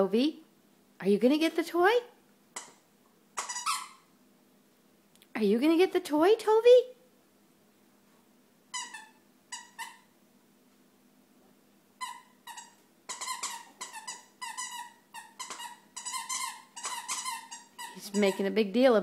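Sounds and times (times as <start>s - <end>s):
squeaky dog toy squeaking: 2.5s - 2.8s, 3.4s - 4.1s, 8.7s - 10.1s, 12.0s - 18.6s.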